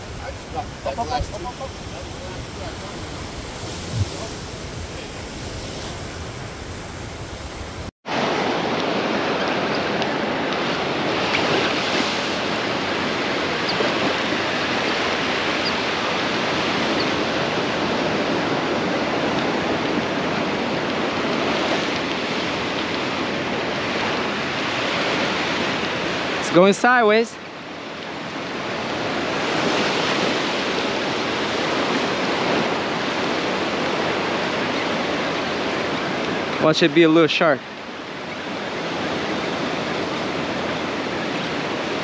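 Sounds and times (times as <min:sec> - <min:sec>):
waves breaking on beach: 0:00.0 - 0:42.0.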